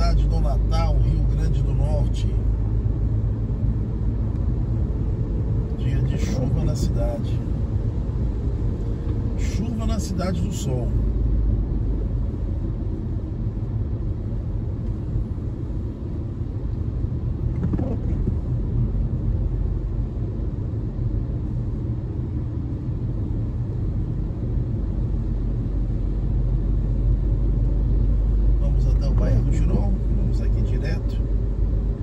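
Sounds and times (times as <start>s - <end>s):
car driving on wet road: 0.0s - 32.0s.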